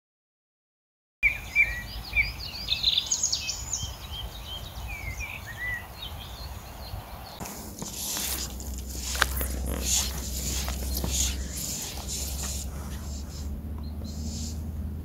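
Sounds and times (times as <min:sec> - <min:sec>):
small birds chirping: 0:01.2 - 0:14.7
low outdoor background noise: 0:01.2 - 0:15.0
broad rush of noise: 0:03.9 - 0:14.8.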